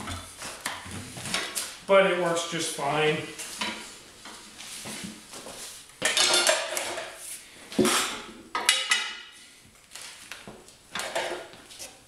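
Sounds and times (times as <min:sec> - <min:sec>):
metal tools clanking and scraping: 0:06.0 - 0:07.2.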